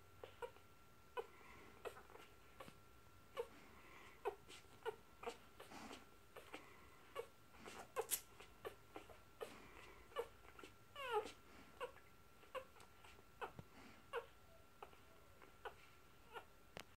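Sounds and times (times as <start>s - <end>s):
puppies squeaking and whimpering: 0.2s - 0.6s, 1.2s - 16.5s
puppy squealing: 6.4s - 16.5s.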